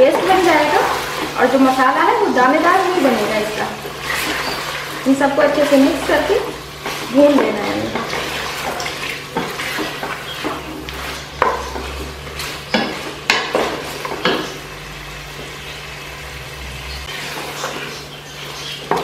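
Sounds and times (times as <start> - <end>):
sizzle of frying in oil: 0.0 - 19.0
spatula scraping a steel pot: 2.6 - 14.6
spatula knocking against pot: 11.4 - 12.0.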